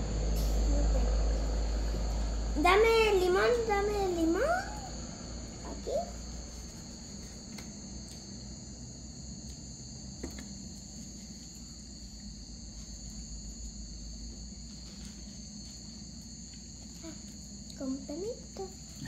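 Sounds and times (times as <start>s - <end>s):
crickets chirping: 0.0s - 19.0s.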